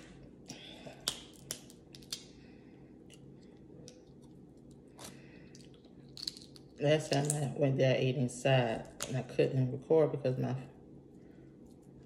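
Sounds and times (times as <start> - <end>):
crab shell cracking: 1.0 - 2.4, 3.1 - 7.4.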